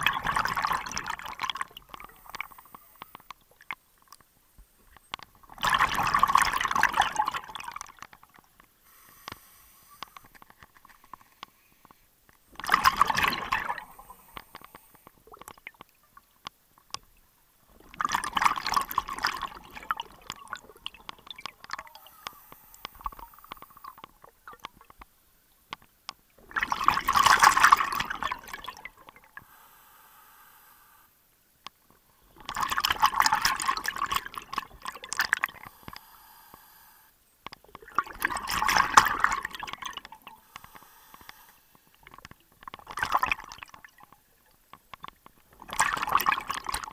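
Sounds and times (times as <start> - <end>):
underwater exhaled bubbles rushing: 0.0 - 2.6, 5.5 - 8.0, 12.6 - 14.3, 37.8 - 40.3.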